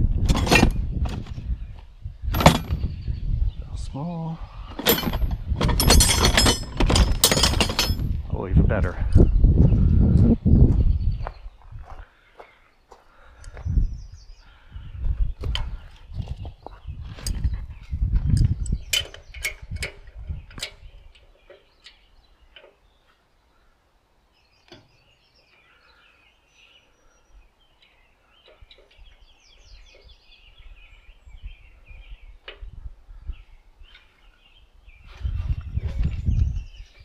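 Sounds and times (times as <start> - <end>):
hand tools clinking on metal: 2.4 - 2.8, 4.8 - 8.2
faint bird chirping: 8.4 - 37.0.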